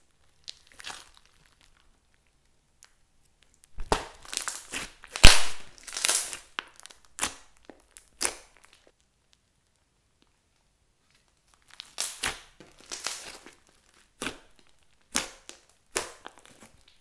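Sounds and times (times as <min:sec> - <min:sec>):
hands kneading slime: 0:00.0 - 0:09.0, 0:10.9 - 0:17.0
slime crackling and squishing: 0:00.0 - 0:17.0
sharp pop: 0:03.8 - 0:04.2, 0:05.2 - 0:05.7.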